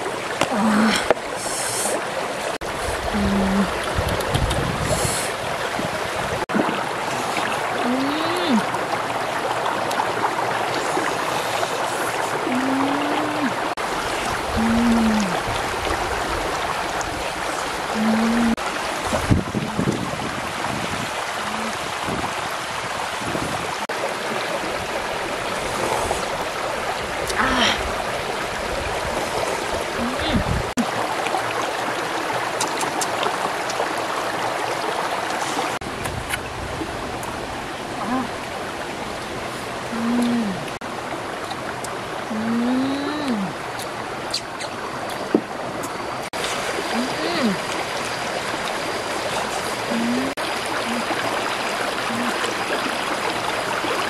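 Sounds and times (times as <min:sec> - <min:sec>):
stream running over rocks: 0:00.0 - 0:54.0
person humming: 0:00.5 - 0:01.1, 0:03.1 - 0:03.8, 0:07.8 - 0:08.7, 0:12.4 - 0:13.6, 0:14.5 - 0:15.4, 0:17.9 - 0:18.6, 0:27.3 - 0:27.8, 0:30.0 - 0:30.5, 0:39.9 - 0:40.7, 0:42.3 - 0:43.6, 0:46.9 - 0:47.6, 0:49.9 - 0:51.1, 0:52.1 - 0:52.4.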